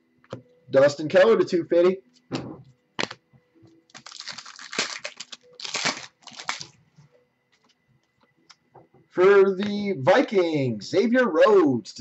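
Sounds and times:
cards rustling: 3.9 - 6.8.

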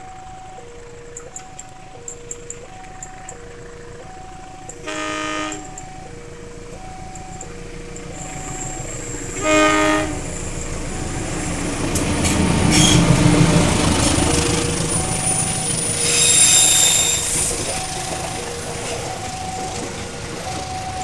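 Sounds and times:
crossing bell ringing: 0.0 - 21.0
train rumble and wheel clatter: 0.0 - 21.0
locomotive horn blasts: 4.7 - 6.0, 8.2 - 11.5, 12.6 - 14.2, 14.9 - 19.6.

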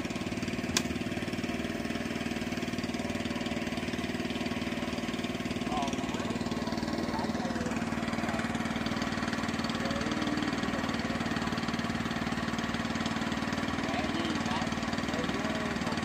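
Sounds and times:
small engine running: 0.0 - 16.0
faint voices: 5.6 - 12.1.

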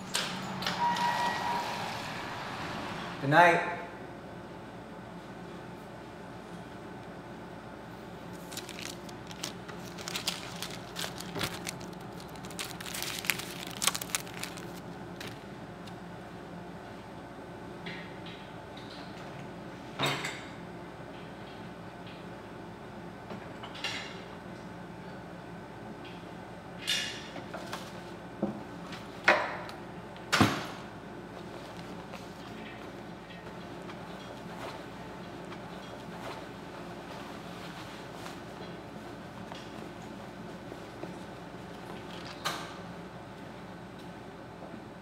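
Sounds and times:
low room hum: 0.0 - 45.0
paper crumpling: 8.3 - 15.5.

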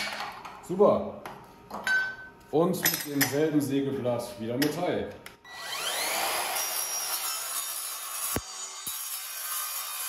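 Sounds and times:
saw spinning up whine: 5.5 - 9.6
saw blade cutting metal: 5.6 - 10.0.

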